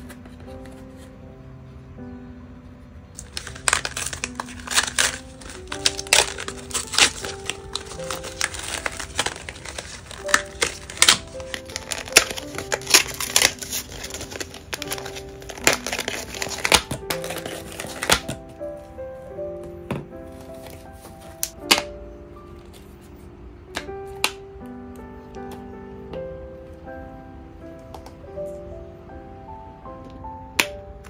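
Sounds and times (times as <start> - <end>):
soft background music: 0.0 - 31.0
plastic packaging crinkling: 3.2 - 18.9.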